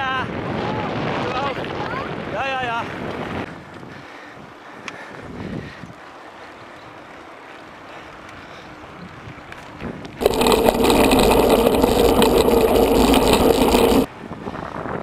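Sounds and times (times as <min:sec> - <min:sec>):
wind noise: 0:09.0 - 0:15.0
bike rolling over gravel: 0:10.2 - 0:14.1.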